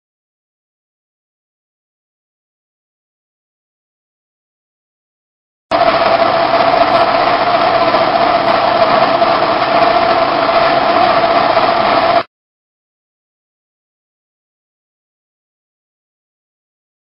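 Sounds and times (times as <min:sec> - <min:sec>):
lathe machine whining: 0:05.7 - 0:12.3.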